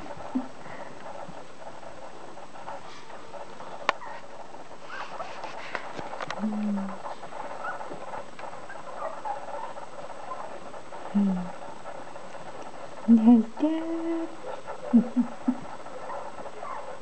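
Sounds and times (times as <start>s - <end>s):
puppies shuffling: 0.0s - 17.0s
puppies squeaking: 4.0s - 5.3s, 7.0s - 10.7s, 14.4s - 17.0s.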